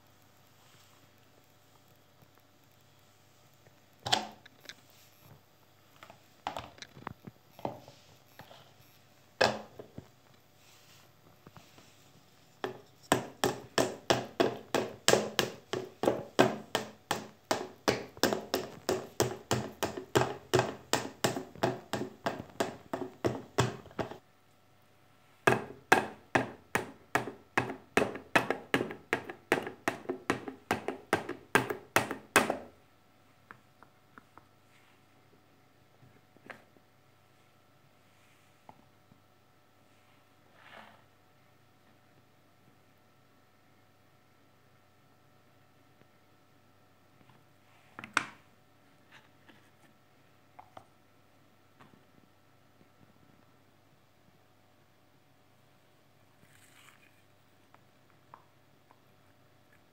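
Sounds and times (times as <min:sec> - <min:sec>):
wooden spoon tapping pomegranate: 0:12.6 - 0:24.2, 0:25.5 - 0:32.7.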